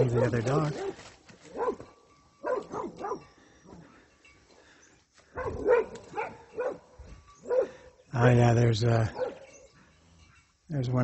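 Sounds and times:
dog barking: 0:00.0 - 0:01.8, 0:02.4 - 0:03.2, 0:05.3 - 0:07.8, 0:09.1 - 0:09.4.

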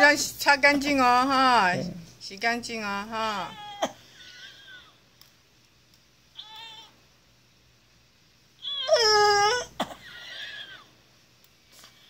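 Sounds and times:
woman whimpering and crying out: 0:08.6 - 0:10.6.

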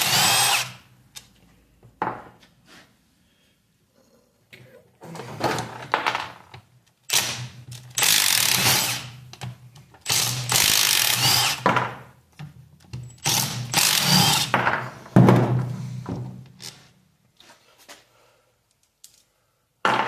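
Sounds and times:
impact wrench running: 0:07.1 - 0:09.2, 0:10.0 - 0:11.6, 0:13.2 - 0:14.6.

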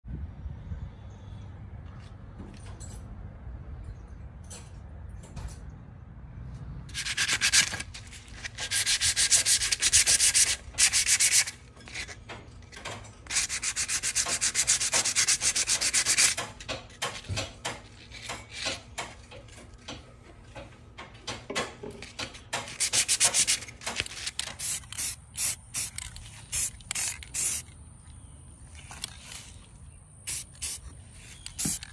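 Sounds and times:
sandpaper scraping on steel: 0:06.9 - 0:12.2, 0:13.3 - 0:17.3, 0:22.6 - 0:27.6.

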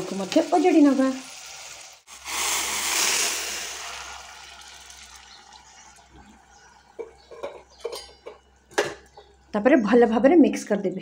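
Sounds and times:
water poured onto hot food sizzling: 0:00.0 - 0:06.1.

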